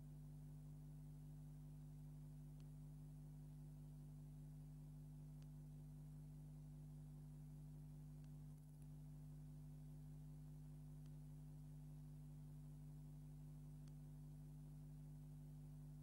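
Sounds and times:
faint electrical hum: 0:00.0 - 0:16.0
faint ticks: 0:13.7 - 0:14.2.

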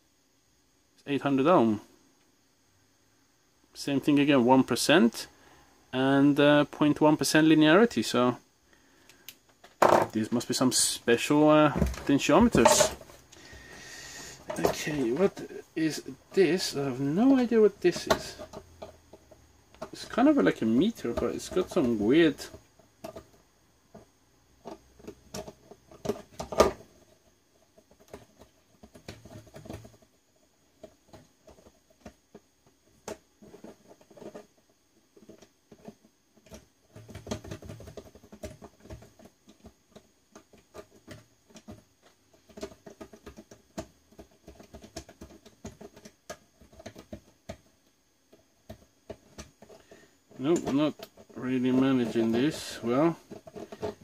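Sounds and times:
hand tools clicking and scraping: 0:11.8 - 0:23.3, 0:48.6 - 0:54.0.

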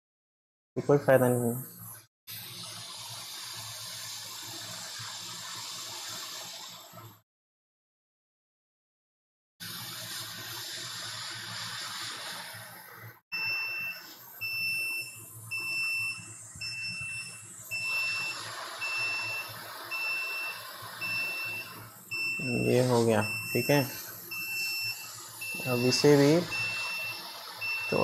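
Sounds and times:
hot air station hissing: 0:02.3 - 0:07.0, 0:09.6 - 0:28.0
short high alarm beeps: 0:13.3 - 0:28.0.

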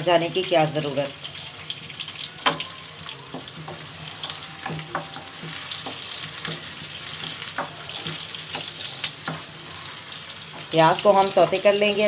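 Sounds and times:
onions sizzling in oil: 0:00.0 - 0:12.0
spatula scraping a pan: 0:03.4 - 0:12.0.

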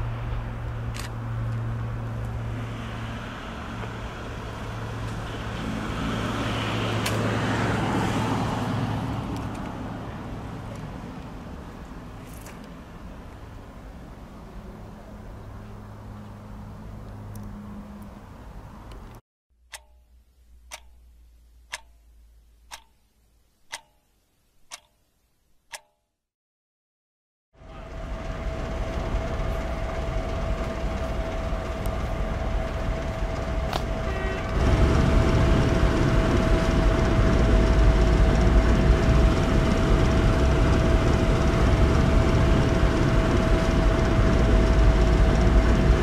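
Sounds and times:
vehicle engine humming: 0:00.0 - 0:19.2, 0:27.6 - 0:46.0
vehicle passing by: 0:00.0 - 0:19.2, 0:27.8 - 0:46.0
clock ticking: 0:19.7 - 0:21.1, 0:21.7 - 0:22.1, 0:22.7 - 0:23.0, 0:23.7 - 0:24.1, 0:24.7 - 0:25.0, 0:25.7 - 0:26.0.

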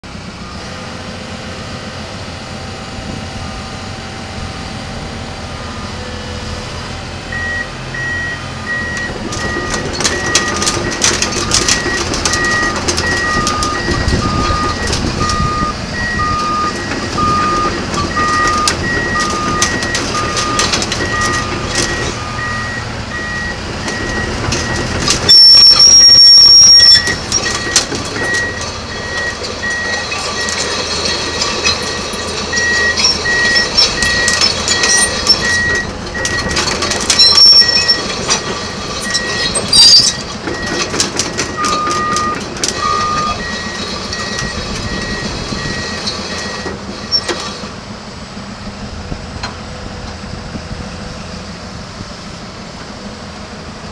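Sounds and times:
excavator engine rumble: 0:00.0 - 0:53.9
steel tracks clanking: 0:01.9 - 0:53.9
two-tone beeping alarm: 0:07.3 - 0:30.6, 0:31.3 - 0:47.4.

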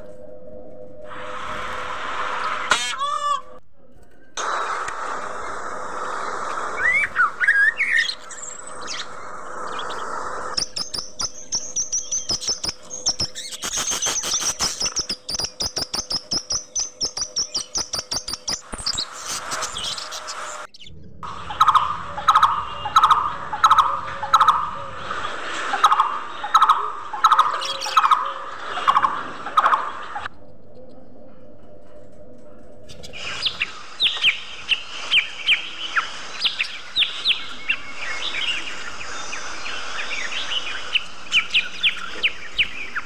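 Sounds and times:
high bird warble: 0:04.4 - 0:43.0
budgerigars chirping and chattering: 0:06.7 - 0:30.3, 0:32.9 - 0:43.0.

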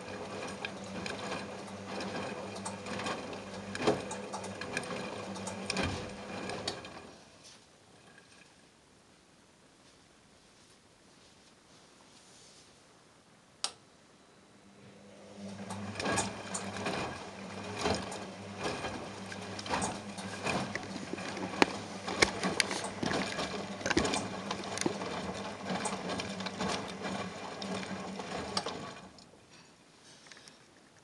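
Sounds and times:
washing machine motor hum: 0:00.0 - 0:08.4, 0:14.6 - 0:29.5
click: 0:13.6 - 0:13.8.

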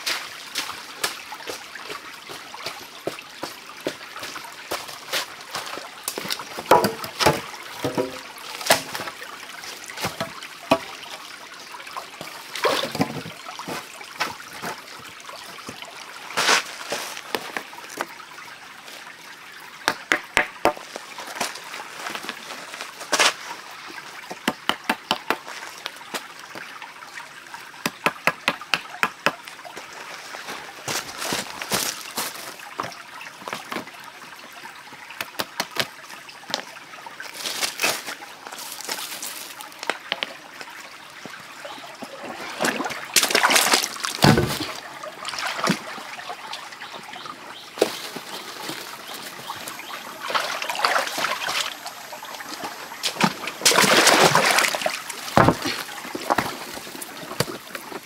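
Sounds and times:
stream water trickling: 0:00.0 - 0:58.0
bamboo poles knocking on stone: 0:06.1 - 0:09.1, 0:10.0 - 0:10.9, 0:19.8 - 0:20.8, 0:24.3 - 0:25.4, 0:27.8 - 0:29.4, 0:55.4 - 0:56.6.

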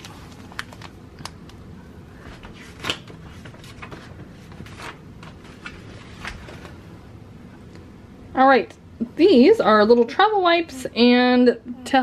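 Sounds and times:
foil packets rustling and crinkling: 0:00.0 - 0:01.4.

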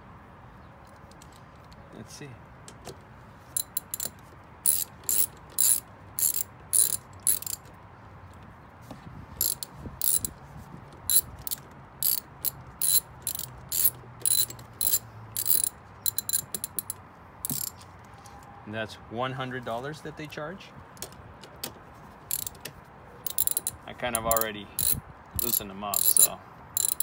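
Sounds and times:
ratchet wrench clicking: 0:03.6 - 0:07.7, 0:09.4 - 0:10.3, 0:11.1 - 0:17.8, 0:22.3 - 0:22.6, 0:23.3 - 0:27.0.

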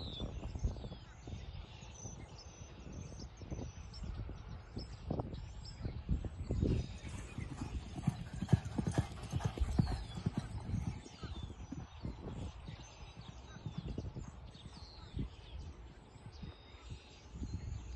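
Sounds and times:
horse hoofbeats galloping on dirt: 0:06.9 - 0:15.5.

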